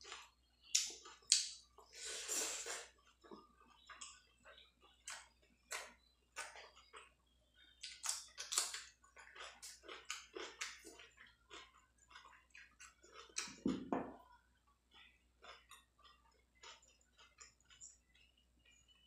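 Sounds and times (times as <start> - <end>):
chewing and wet mouth clicks: 0.0 - 2.0, 2.7 - 19.0
fingers mixing rice on a plate: 3.0 - 13.5.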